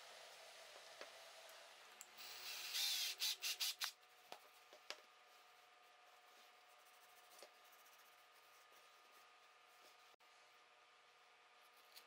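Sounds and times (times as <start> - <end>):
cordless drill boring into wood: 2.2 - 3.9.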